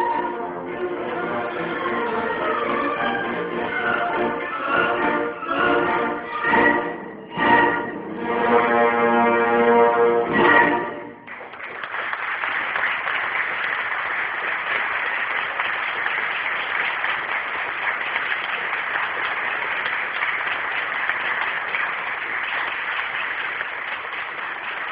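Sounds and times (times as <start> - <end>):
audience applauding: 11.2 - 24.9.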